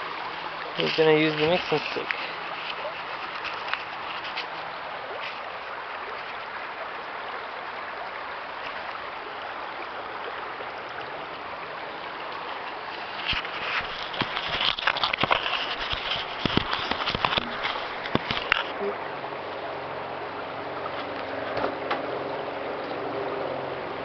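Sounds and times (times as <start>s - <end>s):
river water rushing: 0.0s - 24.0s.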